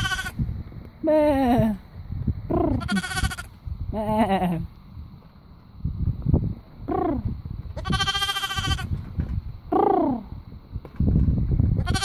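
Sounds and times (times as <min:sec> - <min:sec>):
lambs bleating: 0:00.0 - 0:00.4, 0:02.6 - 0:03.5, 0:07.8 - 0:08.9, 0:11.8 - 0:12.0.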